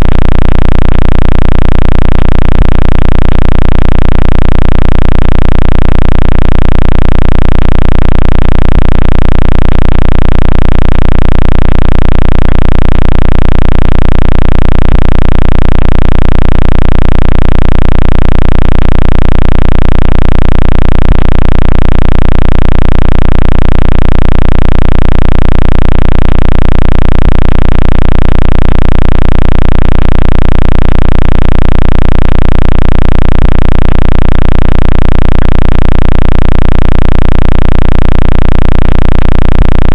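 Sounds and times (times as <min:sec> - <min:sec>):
loud low pulsing drone: 0:00.0 - 0:00.8.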